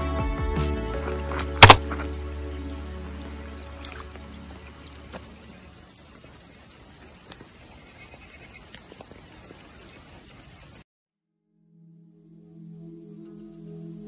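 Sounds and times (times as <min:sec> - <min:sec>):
rain on puddles and wet tarmac: 0:00.9 - 0:10.8.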